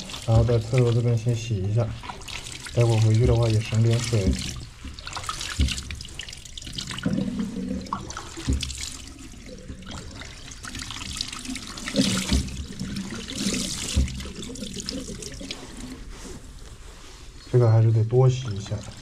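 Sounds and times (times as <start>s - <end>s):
tap water splashing into sink: 0.0s - 1.4s, 2.0s - 15.6s.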